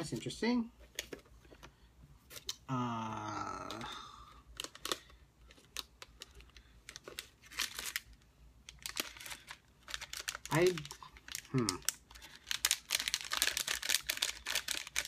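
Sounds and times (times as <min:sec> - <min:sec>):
plastic wrappers crinkling: 0:03.8 - 0:15.0.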